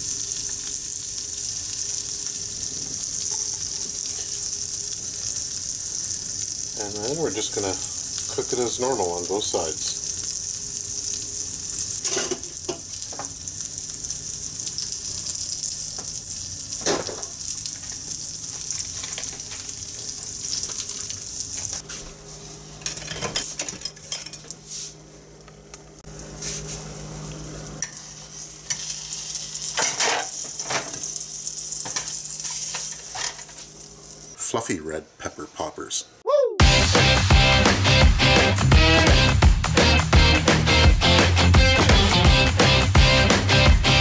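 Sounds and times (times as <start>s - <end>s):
fat sizzling in a pan: 0.0s - 21.8s, 26.3s - 34.4s.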